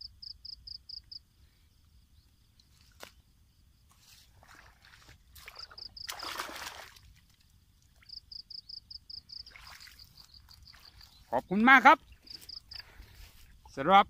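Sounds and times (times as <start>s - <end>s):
insect chirping in quick pulses: 0.0s - 4.2s, 5.4s - 6.8s, 8.0s - 13.7s
water splashing and sloshing: 2.6s - 8.4s, 9.2s - 13.8s.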